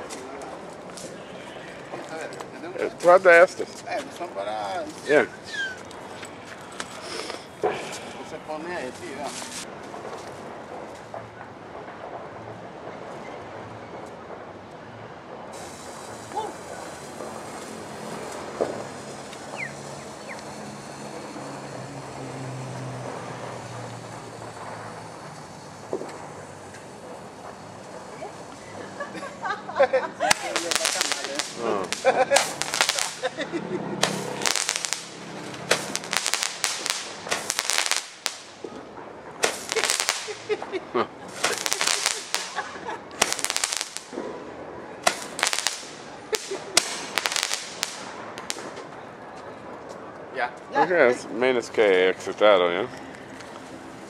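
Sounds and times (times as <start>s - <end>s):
background hiss: 0.0s - 54.0s
fireworks cracking and popping: 0.0s - 54.0s
short falling whistles: 5.4s - 5.8s, 19.5s - 20.4s
vehicle engine humming: 15.3s - 36.4s.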